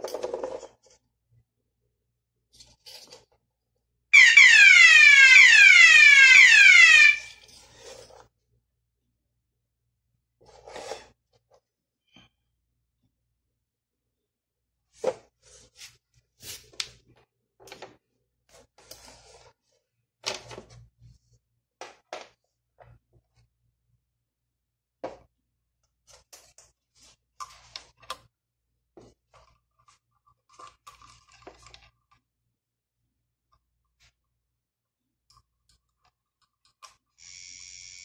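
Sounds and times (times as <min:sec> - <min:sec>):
faint tester buzzer: 0:37.2 - 0:38.0.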